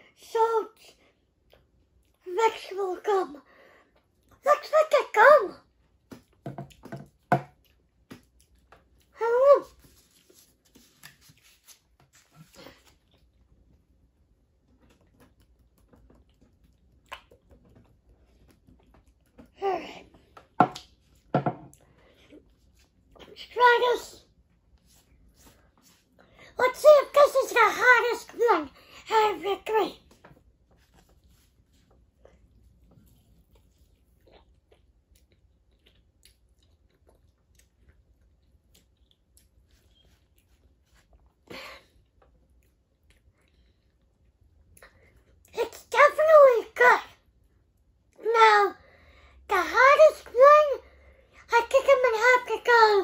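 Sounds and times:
person chewing food: 0:05.9 - 0:09.2, 0:09.8 - 0:23.2, 0:30.3 - 0:45.5.

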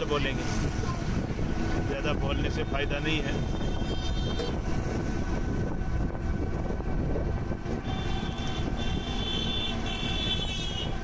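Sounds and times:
road and traffic rumble: 0:00.0 - 0:11.0.

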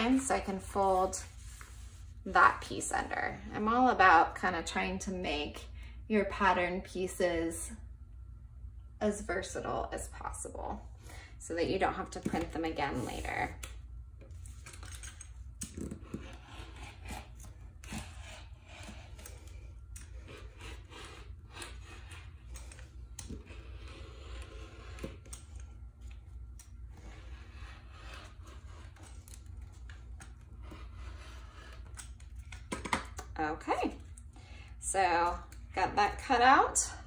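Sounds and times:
rotary cutter scraping through fabric: 0:15.6 - 0:25.6.

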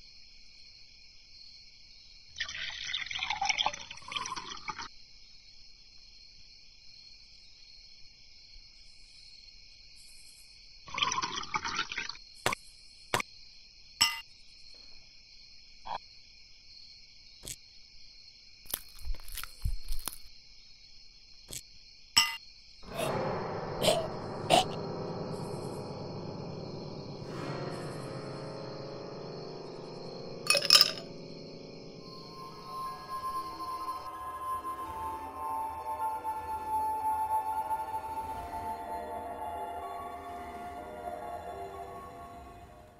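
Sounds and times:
liquid poured into a glass: 0:02.4 - 0:04.9, 0:10.9 - 0:12.1.

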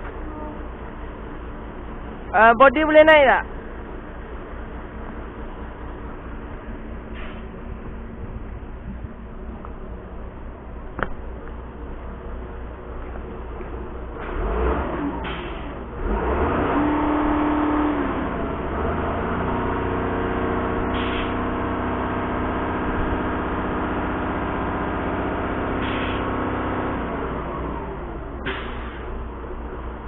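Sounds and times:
diesel engine revving: 0:00.0 - 0:30.0
brief hisses: 0:25.8 - 0:26.2.

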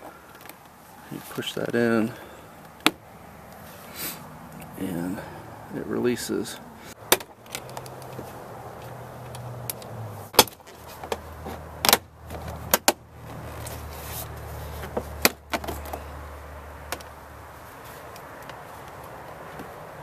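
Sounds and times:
plastic clips snapping and clicking: 0:11.8 - 0:13.0.

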